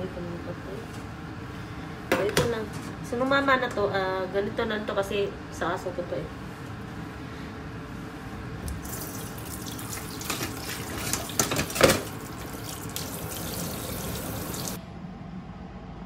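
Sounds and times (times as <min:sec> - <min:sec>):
tap water running into sink: 0:08.7 - 0:14.8.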